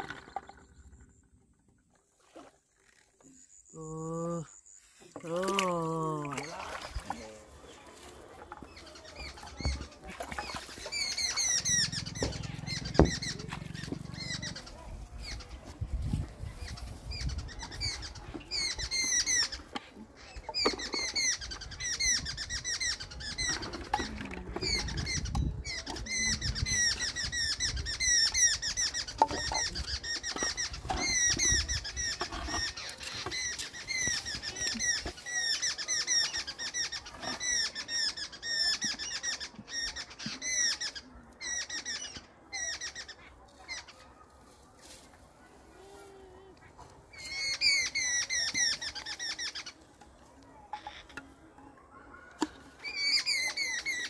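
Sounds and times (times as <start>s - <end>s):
small birds chirping: 2.9s - 44.8s.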